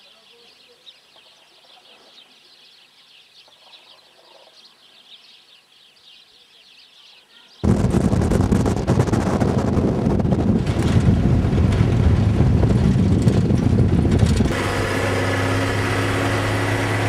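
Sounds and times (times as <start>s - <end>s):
small birds chirping: 0.0s - 7.8s
wind buffeting microphone: 7.6s - 17.0s.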